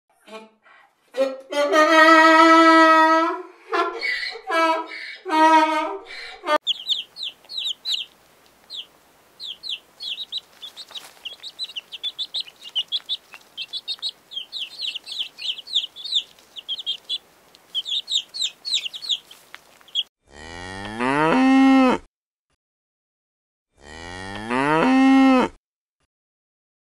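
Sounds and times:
donkey braying: 4.0s - 20.0s
baby chicks peeping: 6.6s - 20.1s
cow mooing: 20.3s - 22.1s, 23.8s - 25.6s.

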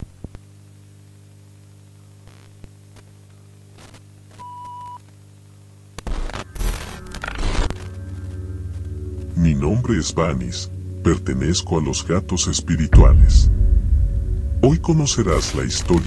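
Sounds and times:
electrical hum: 0.0s - 16.0s
static and glitch noise: 2.2s - 4.4s, 5.9s - 8.8s, 12.9s - 16.0s.

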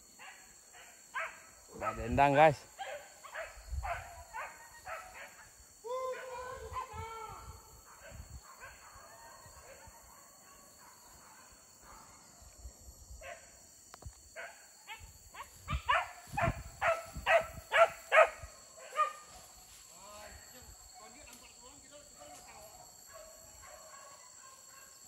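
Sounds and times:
dog barking: 0.2s - 5.5s, 7.8s - 12.4s, 14.4s - 19.3s, 22.2s - 25.0s.

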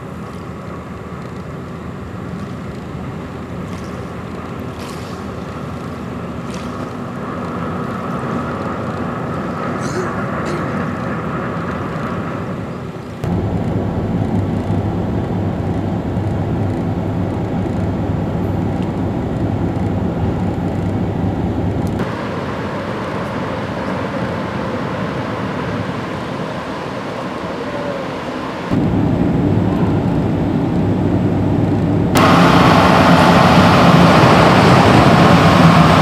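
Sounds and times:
ferry engine rumble and hum: 0.0s - 36.0s.

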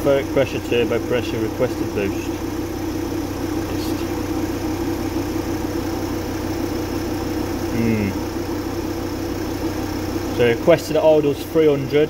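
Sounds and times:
diesel van engine idling: 0.0s - 12.0s.

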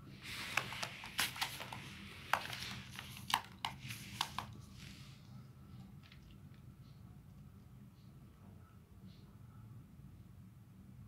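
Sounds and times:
low steady hum: 0.0s - 11.0s
tissue paper crinkling: 0.2s - 5.0s.

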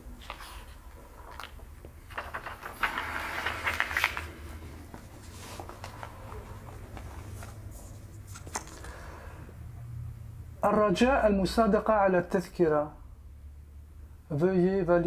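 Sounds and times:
paper rustling and crackling: 0.0s - 9.2s.

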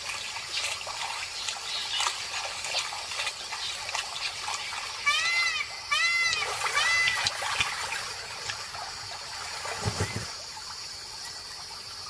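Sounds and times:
wading bird calls: 0.0s - 8.6s
water trickling: 0.0s - 12.0s.

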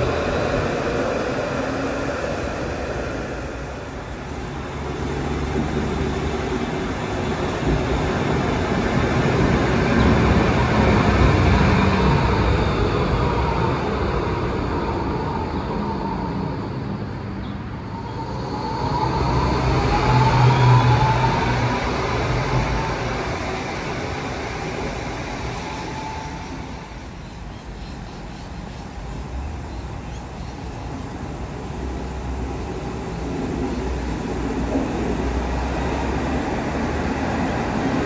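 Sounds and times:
tram motors whining: 0.0s - 29.0s
tram motors humming: 0.0s - 38.0s.

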